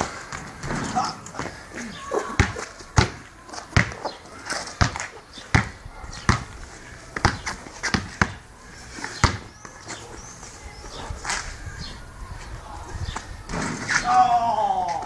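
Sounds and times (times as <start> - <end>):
basketball bouncing on concrete: 2.3 - 4.1, 4.7 - 6.6, 7.2 - 8.4, 9.1 - 9.5.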